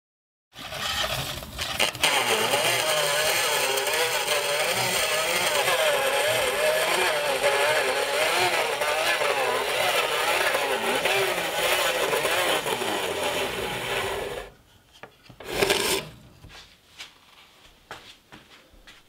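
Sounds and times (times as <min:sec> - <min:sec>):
hand saw rasping through wood: 0:00.6 - 0:14.6, 0:15.4 - 0:16.2.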